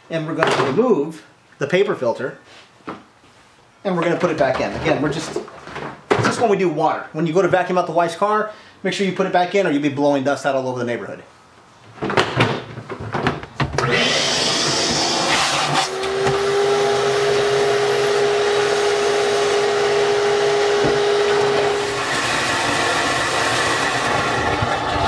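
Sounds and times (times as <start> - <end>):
shop vacuum sucking water: 13.8 - 25.0.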